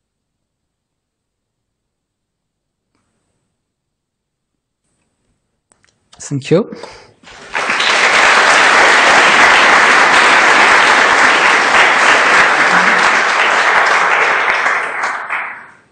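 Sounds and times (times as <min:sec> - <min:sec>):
audience applauding: 0:07.2 - 0:15.9.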